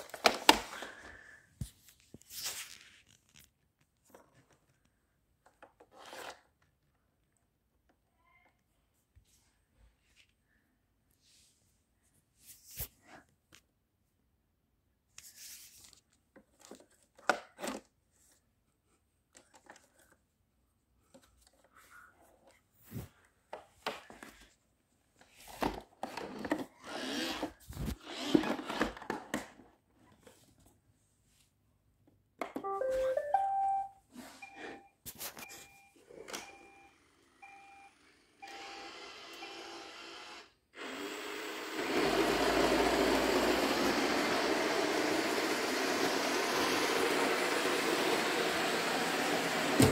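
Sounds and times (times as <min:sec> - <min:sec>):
short rising chime: 0:32.7 - 0:34.0
short beeps: 0:32.7 - 0:38.6
robot vacuum running: 0:36.9 - 0:49.9.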